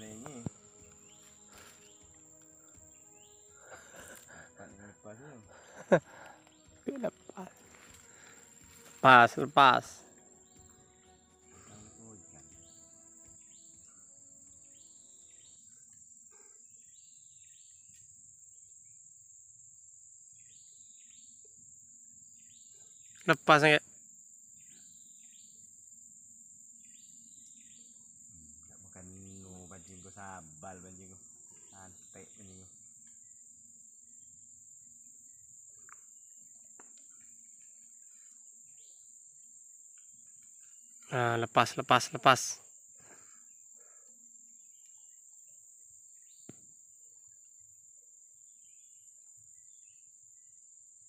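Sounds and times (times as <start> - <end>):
bird chirps: 0.0 - 18.0
high-pitched insect drone: 0.0 - 51.0.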